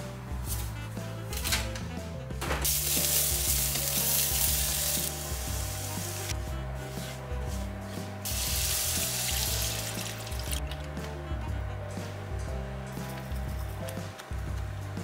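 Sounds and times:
onions sizzling in a frying pan: 2.6s - 6.2s, 8.3s - 10.0s
water hissing in a hot pan: 2.6s - 6.3s, 8.3s - 10.6s.

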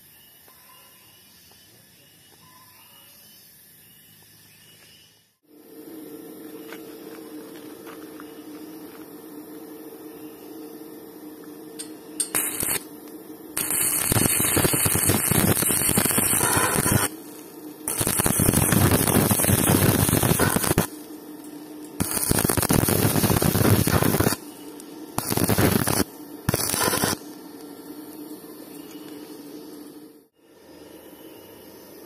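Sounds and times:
low steady hum: 5.4s - 32.0s
welding arc crackling: 6.0s - 30.2s.

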